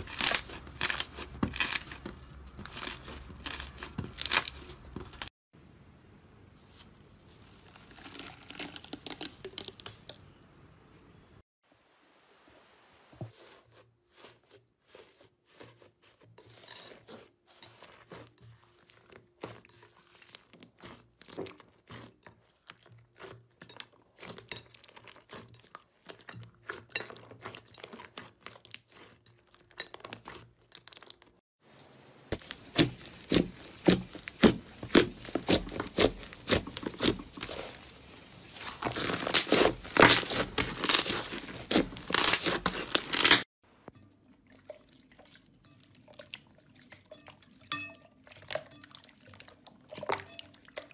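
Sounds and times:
slime squelching and popping: 0:06.7 - 0:10.4, 0:32.3 - 0:43.4.

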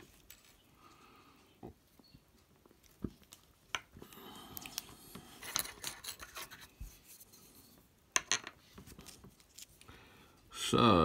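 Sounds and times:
small parts being handled: 0:00.0 - 0:00.8, 0:02.6 - 0:07.5, 0:08.1 - 0:09.9
scraping and rubbing: 0:04.6 - 0:07.8.

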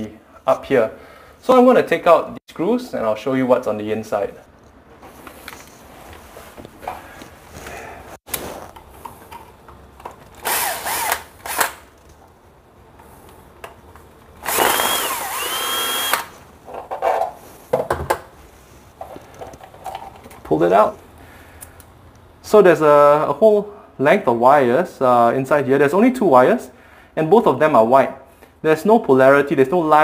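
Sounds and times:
drill clicks: 0:10.3 - 0:11.9, 0:14.4 - 0:16.3
cordless drill motor whining: 0:10.4 - 0:11.7, 0:14.4 - 0:16.3.

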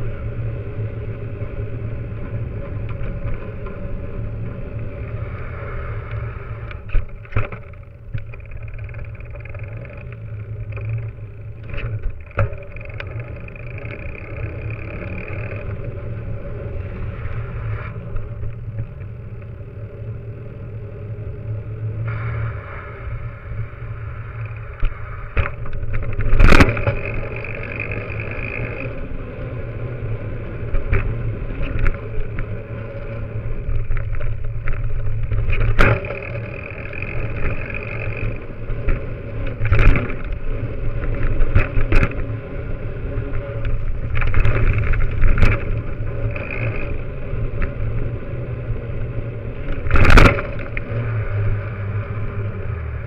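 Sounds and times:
tyre rolling over pavement: 0:30.4 - 0:53.0.

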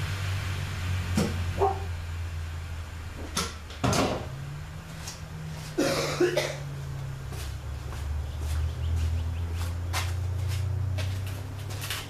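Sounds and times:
steady low hum: 0:00.0 - 0:12.0
sharp knocks and clatters: 0:03.2 - 0:04.3.

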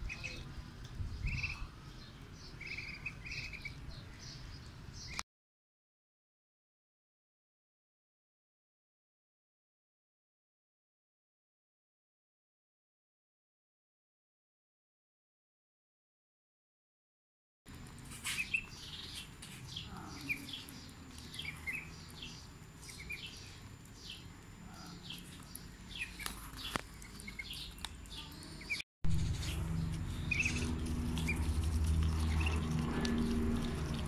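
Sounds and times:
ducklings peeping: 0:00.0 - 0:00.5, 0:01.2 - 0:01.8, 0:02.4 - 0:05.2, 0:18.2 - 0:34.0
steady low hum: 0:17.7 - 0:34.0.

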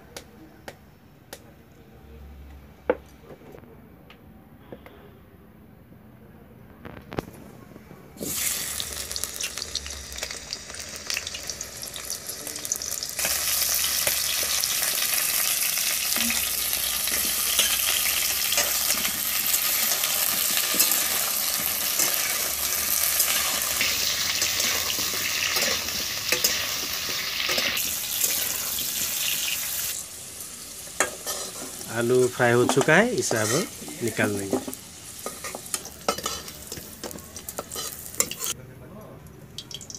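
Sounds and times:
potatoes sizzling in hot oil: 0:08.2 - 0:38.6
metal spatula scraping a pan: 0:16.1 - 0:29.4, 0:31.0 - 0:31.8, 0:32.6 - 0:38.6.

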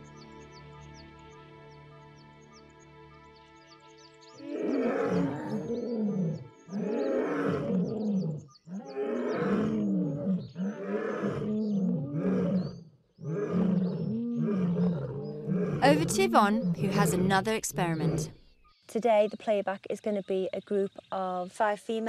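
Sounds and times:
lion roaring: 0:04.4 - 0:17.4.

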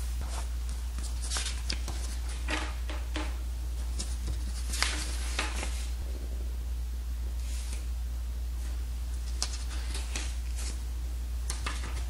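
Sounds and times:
steady low hum: 0:00.0 - 0:12.0
page turning: 0:00.2 - 0:02.4, 0:03.8 - 0:05.9, 0:08.6 - 0:10.8
paper pages rustling: 0:00.2 - 0:02.5, 0:03.8 - 0:06.0, 0:08.6 - 0:10.8, 0:11.5 - 0:12.0.

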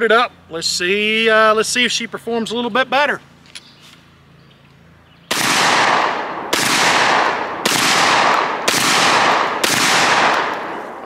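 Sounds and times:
shotgun blasts: 0:05.3 - 0:11.0.

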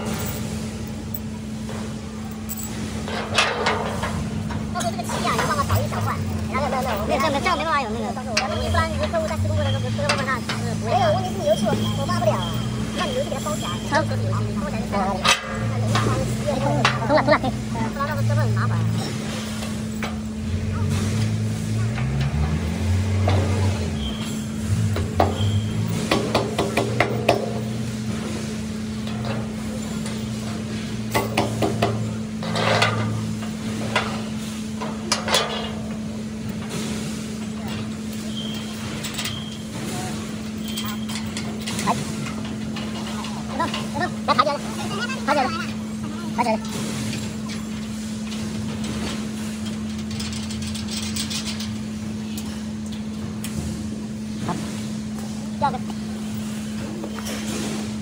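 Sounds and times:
metal parts clicking and clinking: 0:00.0 - 0:01.3, 0:02.2 - 0:07.6, 0:08.4 - 0:28.4, 0:29.0 - 0:36.8, 0:37.4 - 0:53.6
steady machine hum: 0:00.0 - 0:58.0
workshop background noise: 0:00.0 - 0:58.0
metallic clicks of bolt in rail: 0:02.3 - 0:06.1, 0:29.0 - 0:44.0, 0:46.6 - 0:53.7.

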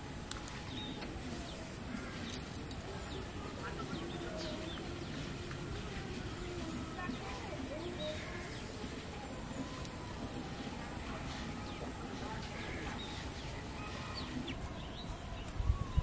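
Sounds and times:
background hiss: 0:00.0 - 0:16.0
faint indistinct voices: 0:00.0 - 0:16.0.

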